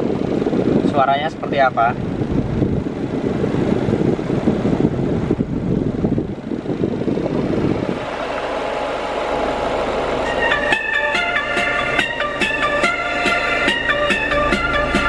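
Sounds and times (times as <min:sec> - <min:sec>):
low rumbling in car cabin: 0:00.0 - 0:15.0
music from speaker: 0:10.2 - 0:15.0.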